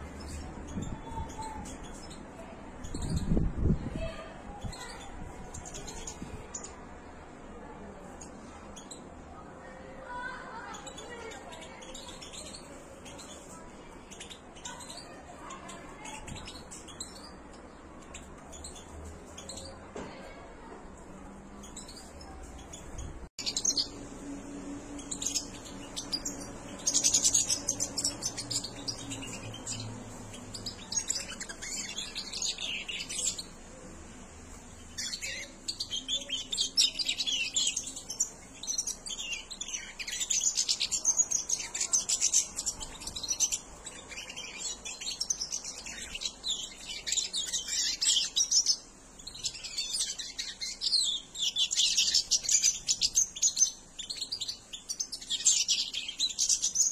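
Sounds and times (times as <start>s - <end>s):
goldfinches twittering: 34.8s - 56.9s.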